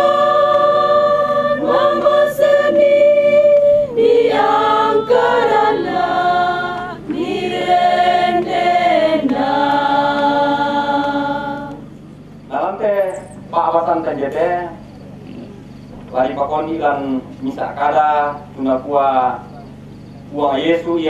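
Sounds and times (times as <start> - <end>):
choir singing unaccompanied: 0.0 - 12.5.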